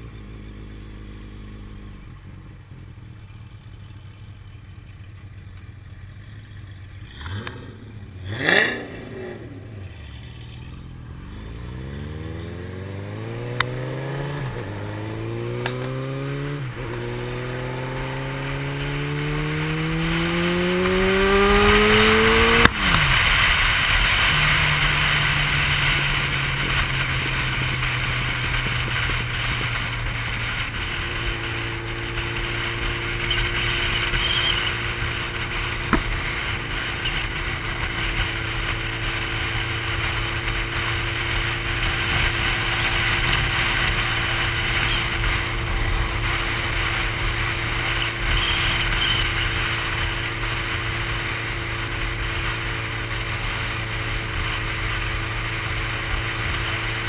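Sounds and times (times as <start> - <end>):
motorcycle engine cruising: 0.0 - 57.0
single click: 15.6 - 16.0.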